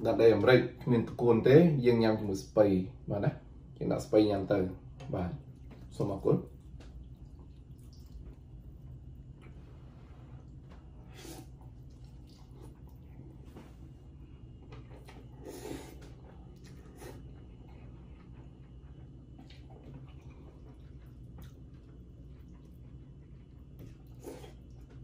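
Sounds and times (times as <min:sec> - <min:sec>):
faint low hum: 0:00.0 - 0:25.0
chewing: 0:05.4 - 0:09.7, 0:10.4 - 0:25.0.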